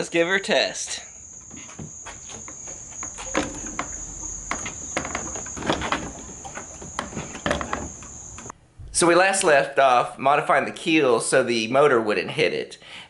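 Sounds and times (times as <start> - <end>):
crickets trilling: 0.9 - 8.5
outboard motor knocking and rubbing: 3.0 - 8.4.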